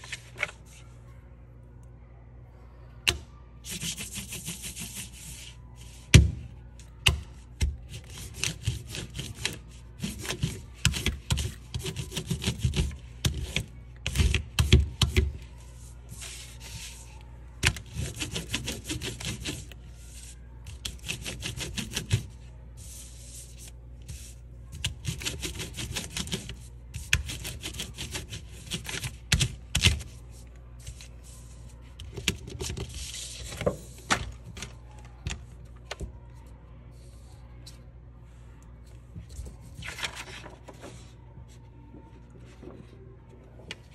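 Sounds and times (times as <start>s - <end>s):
crayon scribbling on paper: 3.7s - 5.5s, 7.9s - 13.6s, 17.7s - 24.4s.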